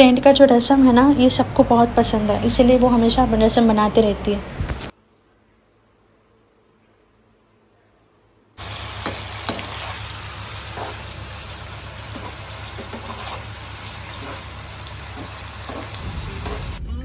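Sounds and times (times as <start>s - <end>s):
fish frying in hot oil: 8.6s - 16.8s.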